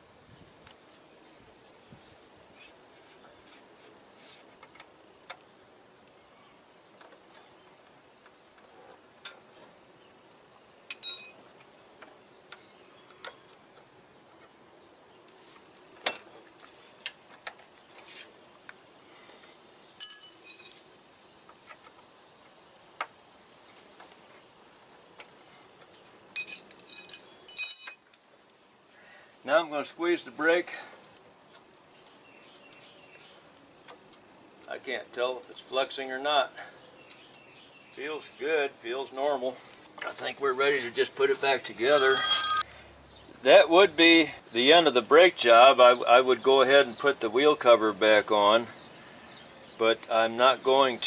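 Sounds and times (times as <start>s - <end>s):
ringing metallic chinks: 10.9s - 11.4s, 20.0s - 20.8s, 26.4s - 28.1s, 41.8s - 42.6s.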